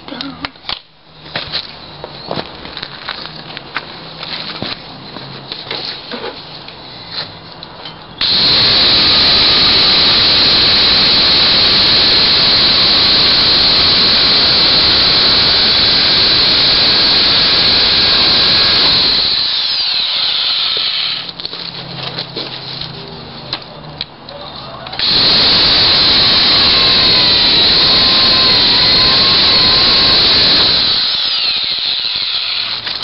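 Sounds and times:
electric chainsaw cutting log: 0:08.2 - 0:21.3, 0:25.0 - 0:33.0.

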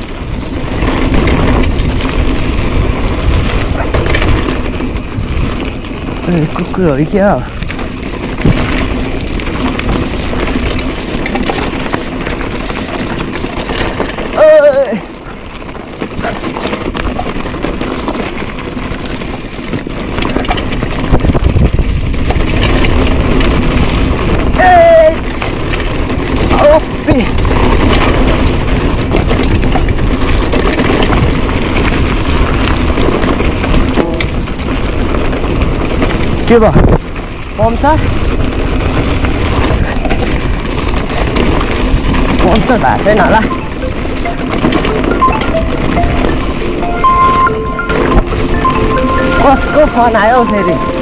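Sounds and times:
bike rattling: 0:00.0 - 0:51.0
tyres crunching on gravel: 0:00.0 - 0:51.0
wind on microphone: 0:00.0 - 0:51.0.

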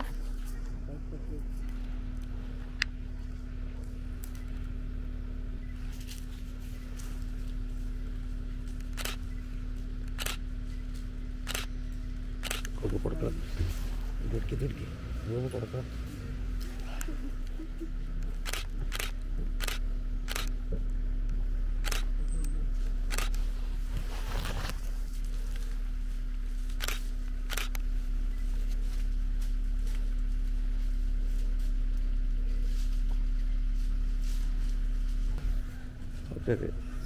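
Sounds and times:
steady low rumble: 0:00.0 - 0:37.0
camera shutter clicks: 0:08.8 - 0:09.2, 0:10.1 - 0:10.4, 0:11.4 - 0:11.7, 0:12.4 - 0:12.8, 0:18.4 - 0:20.6, 0:21.8 - 0:22.1, 0:23.1 - 0:23.4, 0:26.8 - 0:27.8.

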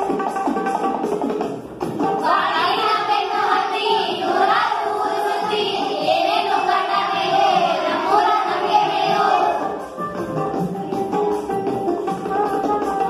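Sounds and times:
children singing in unison: 0:02.2 - 0:10.0.

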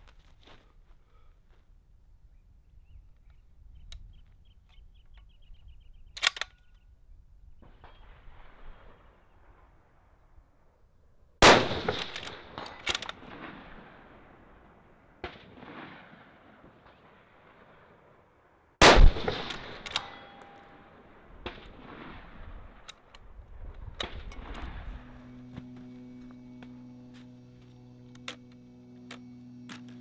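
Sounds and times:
rifle shots with rolling echo: 0:11.4 - 0:23.1
steel target ringing: 0:19.3 - 0:21.3.

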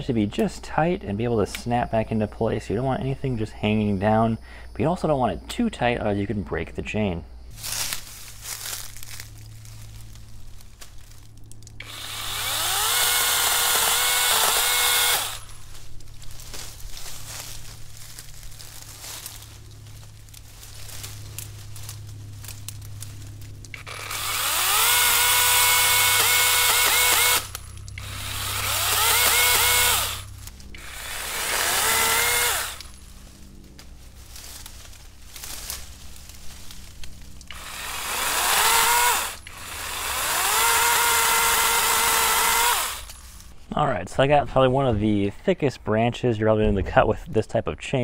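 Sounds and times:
cordless chainsaw motor whining: 0:11.0 - 0:17.6, 0:19.0 - 0:43.5.

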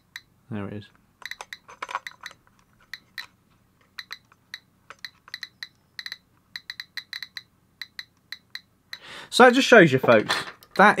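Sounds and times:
geiger counter clicking: 0:01.2 - 0:09.0.

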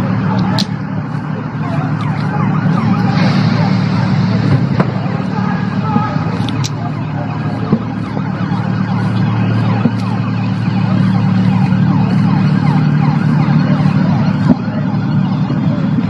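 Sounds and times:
emergency vehicle sirens: 0:00.0 - 0:16.0
steady low hum: 0:00.0 - 0:16.0.

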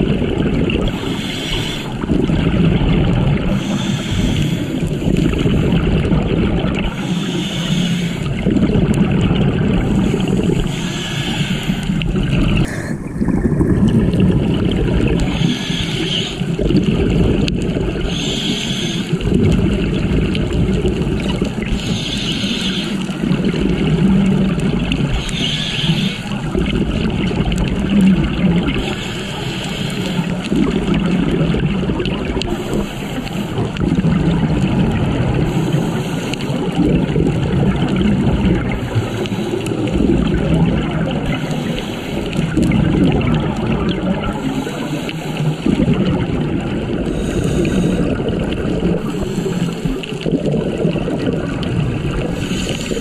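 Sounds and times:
gurgling exhaled bubbles: 0:00.0 - 0:53.0
regulator hiss on inhale: 0:00.9 - 0:02.0, 0:03.5 - 0:05.3, 0:06.9 - 0:08.4, 0:09.9 - 0:13.1, 0:15.2 - 0:16.6, 0:18.1 - 0:19.2, 0:21.6 - 0:23.2, 0:25.1 - 0:26.4, 0:28.8 - 0:30.4, 0:32.4 - 0:33.6, 0:35.5 - 0:36.8, 0:38.7 - 0:40.0, 0:41.2 - 0:42.6, 0:44.4 - 0:45.7, 0:47.0 - 0:48.2, 0:48.9 - 0:50.1, 0:52.3 - 0:53.0.

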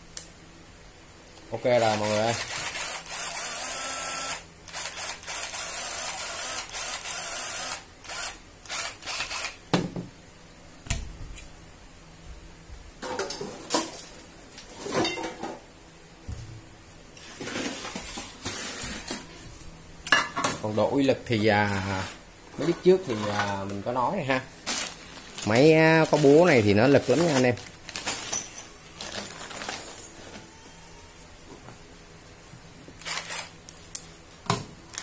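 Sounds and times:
impact driver motor whirring: 0:02.4 - 0:09.6
tools clattering on table: 0:28.0 - 0:28.8.

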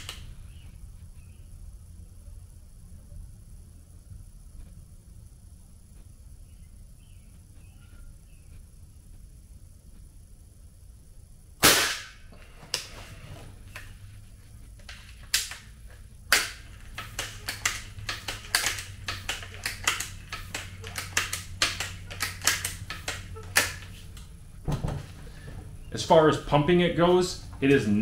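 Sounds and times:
air rifle firing: 0:11.6 - 0:12.3
rifle pump lever clicks and knocks: 0:17.0 - 0:23.9.

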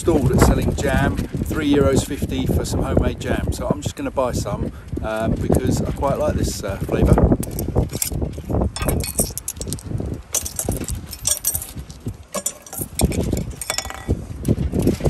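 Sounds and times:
coins clinking in a hand: 0:08.8 - 0:09.8, 0:10.4 - 0:14.1
coins dropping into metal box: 0:08.8 - 0:14.2.

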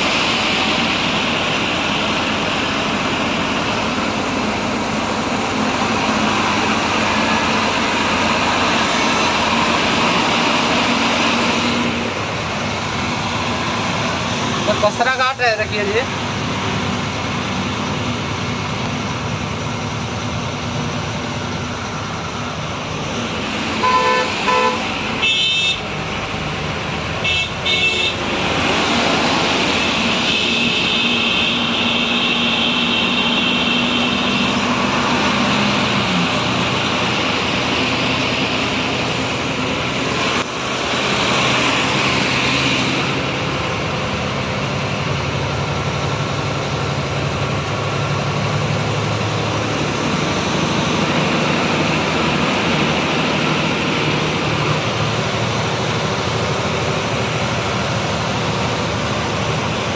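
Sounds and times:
vehicle engine and road noise: 0:00.0 - 0:59.9
vehicle horn toots: 0:23.8 - 0:25.9, 0:27.2 - 0:28.2.

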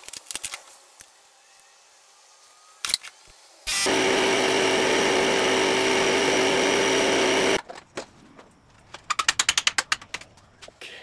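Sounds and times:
small electric motor buzzing: 0:00.7 - 0:07.6.

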